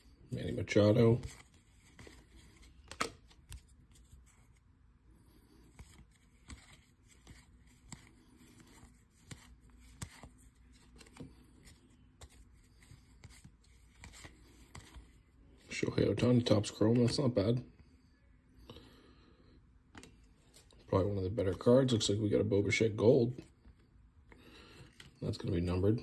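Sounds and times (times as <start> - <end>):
cards clicking and sliding: 1.1 - 4.6, 5.4 - 15.2, 19.9 - 20.8.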